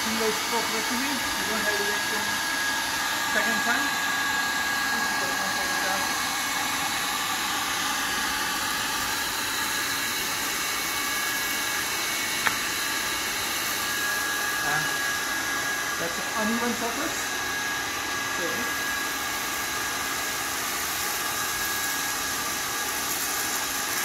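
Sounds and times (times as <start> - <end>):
industrial vacuum motor whine: 0.0 - 24.0
vacuum floor tool on concrete: 0.0 - 24.0
sharp click: 12.4 - 12.6.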